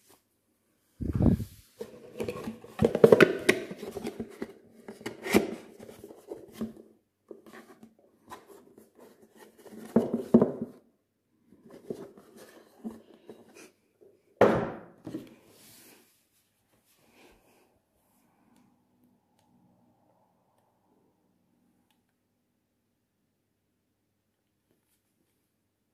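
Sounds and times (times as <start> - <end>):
paper and cardboard rustling: 1.1 - 10.7.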